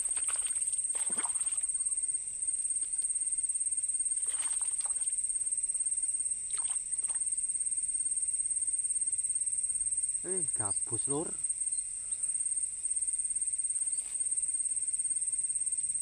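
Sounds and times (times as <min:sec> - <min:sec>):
insect trilling: 0:00.0 - 0:16.0.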